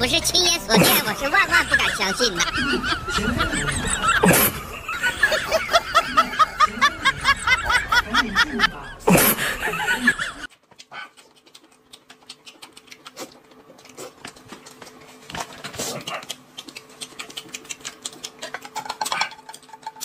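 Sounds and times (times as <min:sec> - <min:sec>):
snickering laughter sound effect: 0:00.7 - 0:10.5
chewing: 0:10.5 - 0:20.0.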